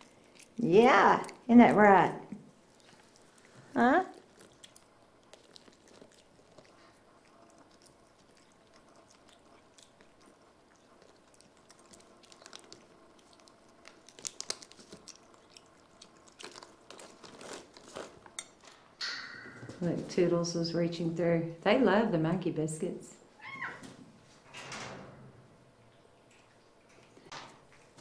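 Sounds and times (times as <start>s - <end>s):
crunching of dry biscuits chewed: 0.0s - 0.6s, 2.6s - 18.6s.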